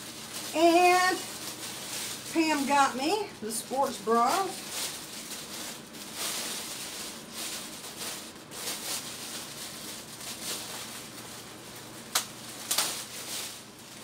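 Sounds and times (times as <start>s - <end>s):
plastic bag crinkling: 0.0s - 14.0s.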